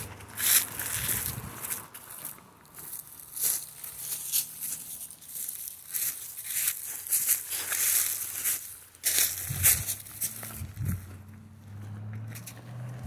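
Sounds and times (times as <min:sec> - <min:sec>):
footsteps crunching dry leaves: 0:00.0 - 0:11.2.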